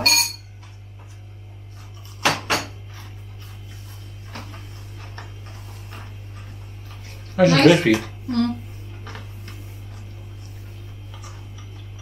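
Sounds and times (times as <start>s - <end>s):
cutlery clinking on plate: 0.0s - 0.5s
steady low hum: 0.0s - 12.0s.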